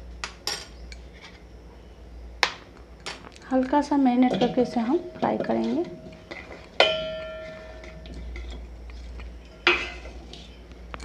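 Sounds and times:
steel plate clanking on pot: 4.2s - 8.2s, 9.6s - 10.1s.

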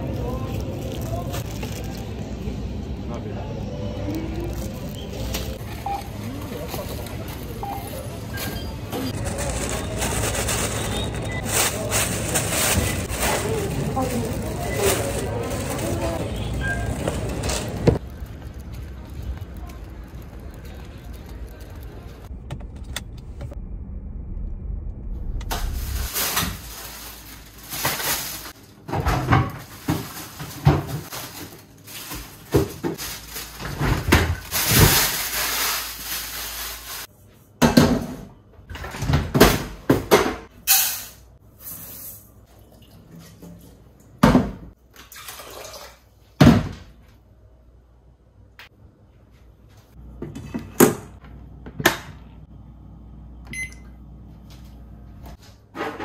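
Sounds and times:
plastic bag rustling: 0.0s - 2.5s, 4.3s - 8.3s, 8.9s - 22.2s, 25.5s - 28.9s, 29.5s - 37.1s
low outdoor rumble: 0.0s - 37.1s, 47.3s - 55.4s
kitchen knocks and clunks: 28.8s - 31.1s, 37.6s - 40.5s, 44.2s - 44.7s, 46.4s - 47.0s, 55.7s - 56.0s.

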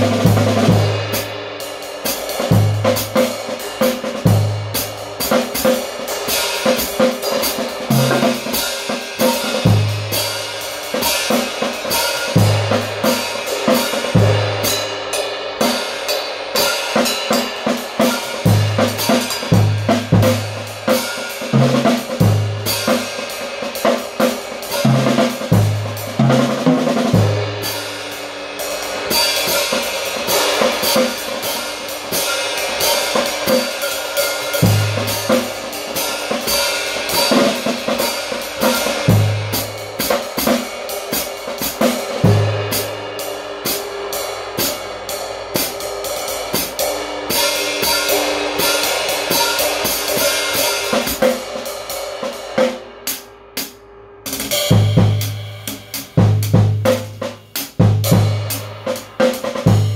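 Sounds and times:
cymbals ringing: 45.8s - 51.0s.

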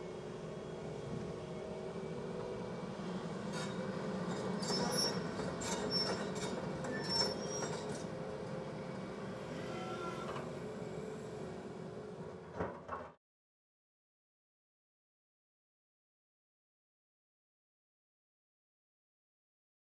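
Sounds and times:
excavator diesel engine running: 0.0s - 12.6s
metallic squeals and clanks: 3.5s - 8.1s, 9.6s - 10.5s.

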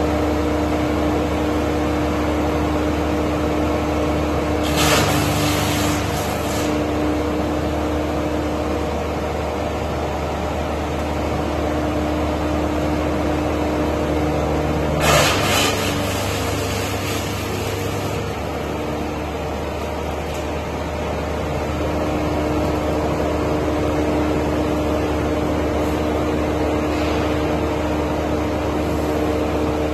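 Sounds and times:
diesel engine running: 0.0s - 29.9s
short noisy burst: 15.0s - 18.1s.

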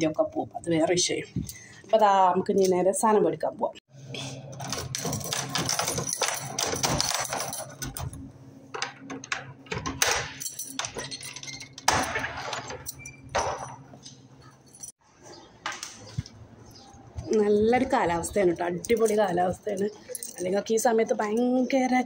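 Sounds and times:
objects clinking and knocking: 4.6s - 15.0s.

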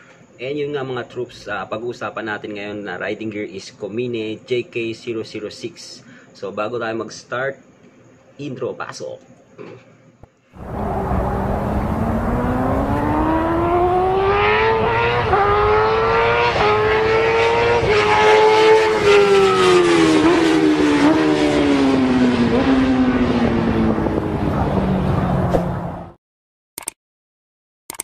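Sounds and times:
racing engine revving: 10.6s - 26.0s.

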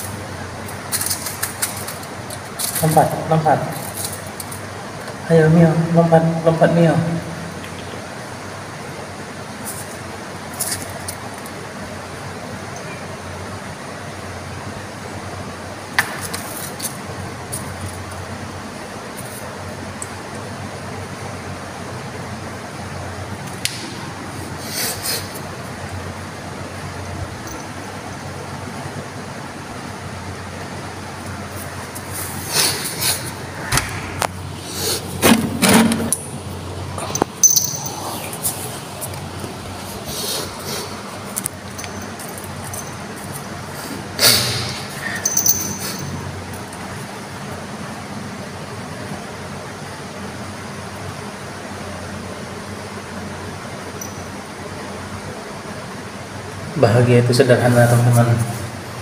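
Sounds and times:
background hiss: 0.0s - 59.0s
steady low hum: 0.0s - 59.0s
collar bell jingling: 37.1s - 38.1s, 41.6s - 43.3s, 45.1s - 46.3s, 54.0s - 54.4s.

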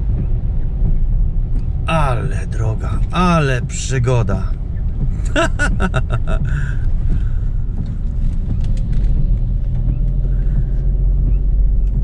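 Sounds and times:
car engine and tyres rumbling: 0.0s - 12.0s
man's voice: 1.9s - 4.6s, 5.3s - 6.8s.

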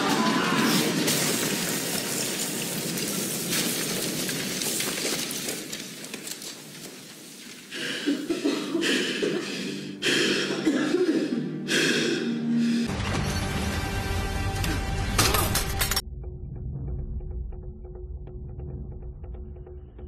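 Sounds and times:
debris falling: 0.0s - 7.7s
man breathing hard: 7.7s - 10.6s, 11.3s - 12.9s.

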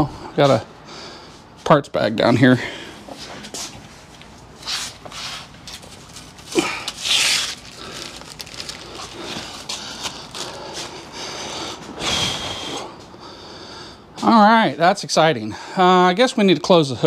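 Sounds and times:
plastic bag rustling: 4.9s - 11.1s.

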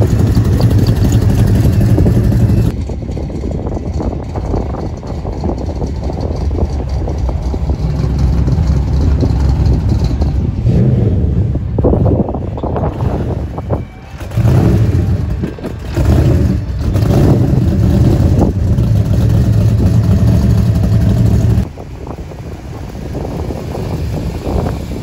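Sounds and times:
car engine rumbling: 0.0s - 25.0s
wind noise on microphone: 0.0s - 25.0s.

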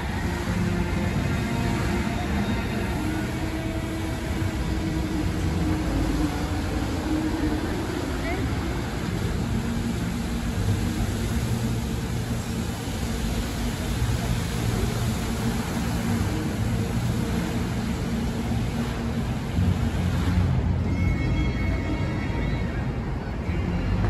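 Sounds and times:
fountain water jets hissing: 0.0s - 24.0s
traffic hum: 0.0s - 24.0s.

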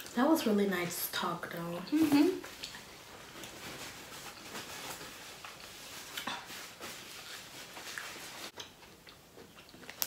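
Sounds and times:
chewing and mouth noises: 2.4s - 3.6s, 7.8s - 10.0s
food packaging clicks and rustles: 2.5s - 9.0s.

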